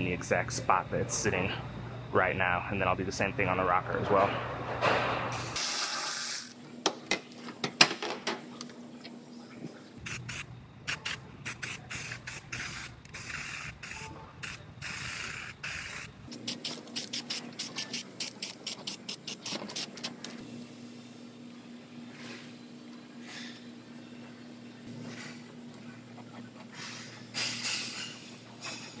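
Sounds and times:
aerosol can spraying in hissing spurts: 10.1s - 20.2s.

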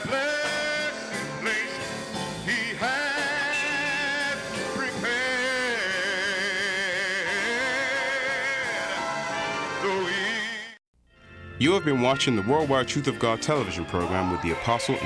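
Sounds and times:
person singing with vibrato: 0.0s - 10.8s
gospel music: 0.0s - 15.0s.

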